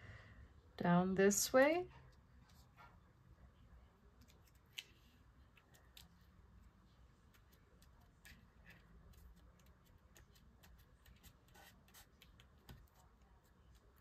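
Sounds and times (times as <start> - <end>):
light clicks of paper craft work: 4.1 - 14.0.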